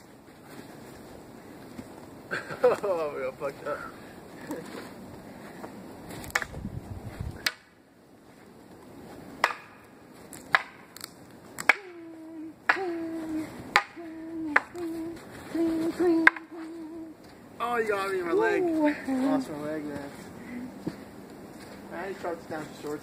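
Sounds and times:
wooden swords clacking: 9.4 - 12.0, 13.7 - 14.0, 16.2 - 16.5.

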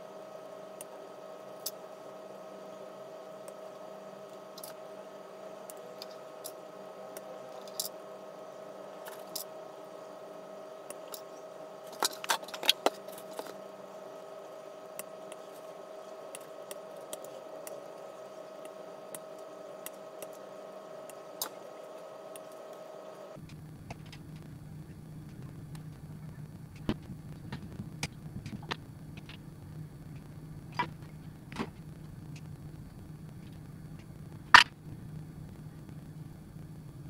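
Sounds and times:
steady hum: 0.0 - 37.0.

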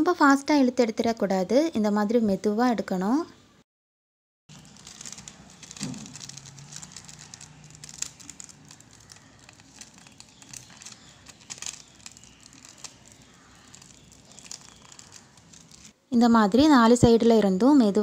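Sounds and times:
paper peeling and crinkling: 4.5 - 16.0.

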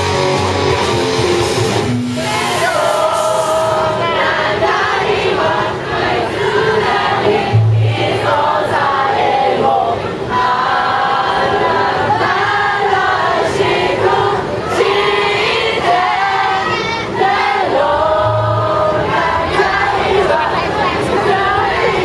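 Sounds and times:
live rock band: 0.0 - 3.1
crowd voices: 0.0 - 22.0.

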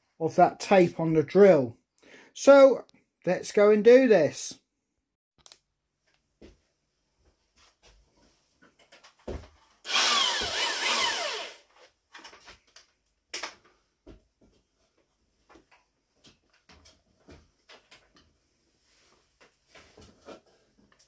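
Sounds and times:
electric drill motor whine: 9.9 - 11.6.

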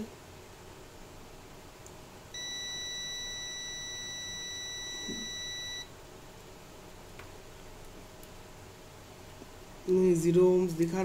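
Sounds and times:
multimeter continuity beep: 2.4 - 5.9.

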